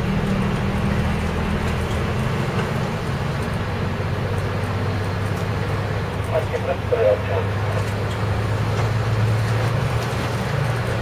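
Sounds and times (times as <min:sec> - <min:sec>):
bus engine drone: 0:00.0 - 0:11.0
road noise on wet road: 0:00.0 - 0:11.0.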